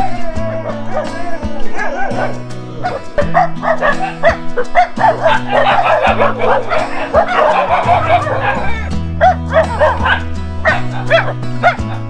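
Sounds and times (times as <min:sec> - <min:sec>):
background music with low bass: 0:00.0 - 0:12.0
dogs barking and yipping: 0:00.0 - 0:12.0.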